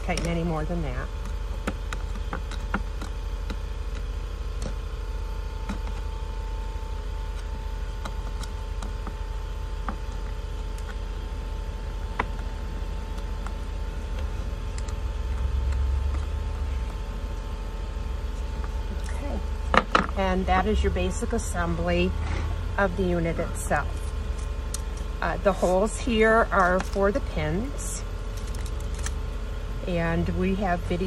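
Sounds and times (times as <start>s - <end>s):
acrylic parts clicking and tapping: 0.0s - 4.9s, 5.6s - 6.2s, 7.3s - 17.2s, 18.3s - 20.2s, 24.0s - 27.3s
low background hum: 0.0s - 31.0s.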